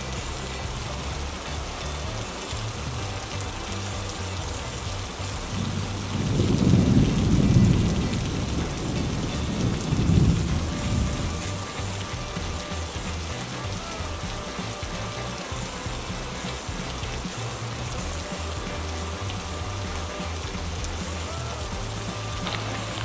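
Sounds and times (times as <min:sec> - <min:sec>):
low rumble: 0:00.0 - 0:14.3
heavy rain pelting camera: 0:00.0 - 0:23.0.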